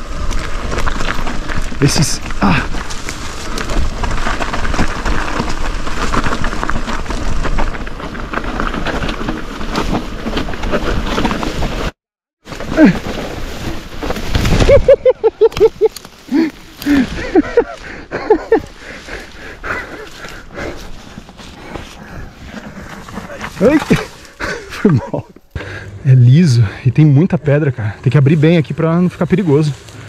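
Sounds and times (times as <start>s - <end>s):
bike clattering over rocky trail: 0.1s - 11.9s, 21.3s - 25.3s.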